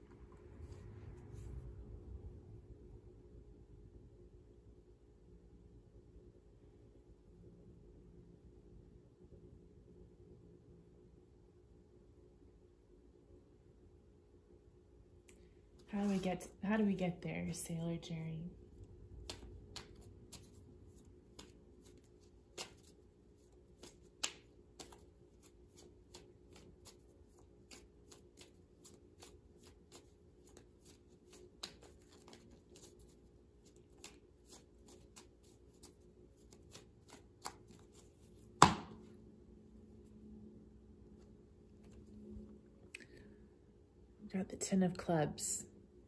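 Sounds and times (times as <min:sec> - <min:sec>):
playing cards shuffling: 0:15.8 - 0:17.0, 0:18.6 - 0:39.2, 0:41.7 - 0:42.5
sharp snap of cards: 0:23.8 - 0:25.0, 0:38.6 - 0:39.1.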